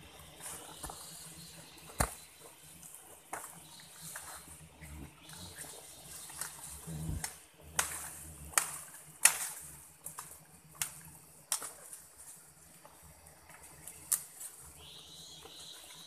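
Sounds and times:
footsteps in dry leaves and twigs: 0:00.0 - 0:06.8.

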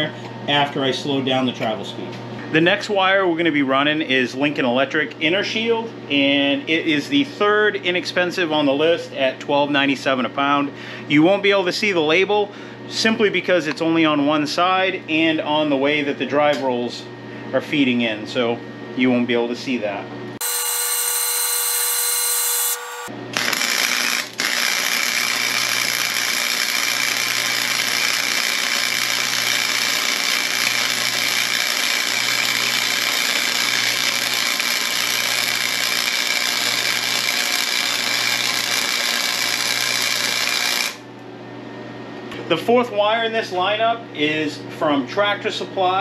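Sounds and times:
welder whine: 0:20.3 - 0:43.3
arc welding crackling hiss: 0:20.4 - 0:41.0.

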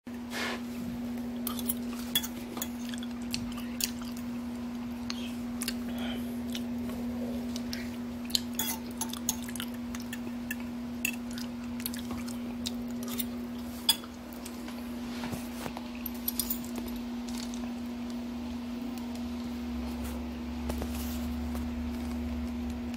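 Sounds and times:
low electrical hum: 0:00.1 - 0:22.9
spoon clinking in ceramic bowl: 0:08.6 - 0:09.5.

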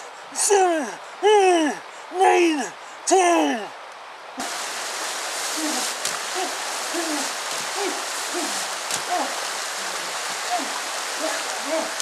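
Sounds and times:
rushing splashing water: 0:04.3 - 0:12.0.

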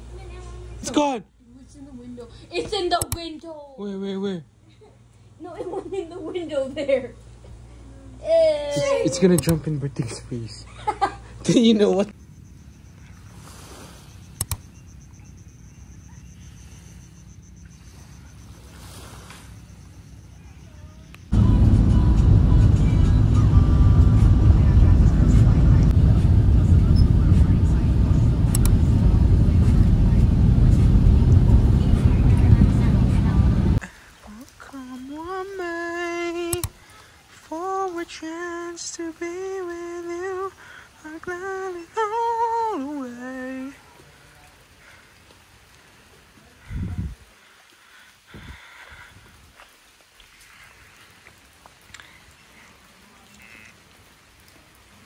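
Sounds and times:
sharp clicks: 0:02.9 - 0:03.3, 0:09.3 - 0:09.6, 0:14.4 - 0:14.8, 0:28.5 - 0:28.8, 0:36.5 - 0:36.8
insect trill: 0:11.9 - 0:21.4
low rumble: 0:21.3 - 0:33.8.

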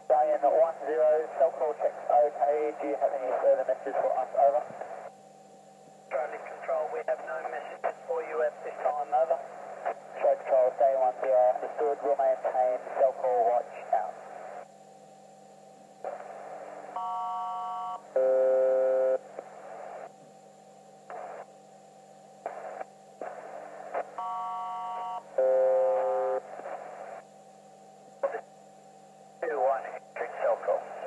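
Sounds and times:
steady hum: 0:00.0 - 0:31.0
radio static bursts: 0:22.5 - 0:24.2, 0:28.2 - 0:28.4.

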